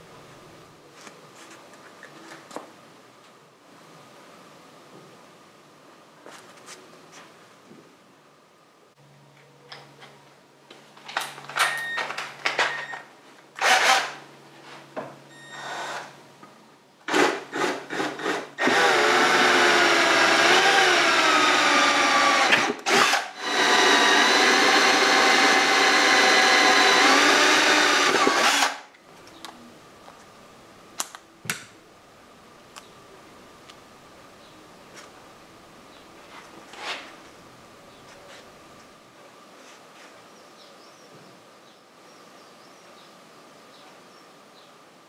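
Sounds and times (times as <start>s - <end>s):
power drill boring plastic: 13.6s - 14.2s, 15.6s - 16.1s, 17.1s - 28.9s.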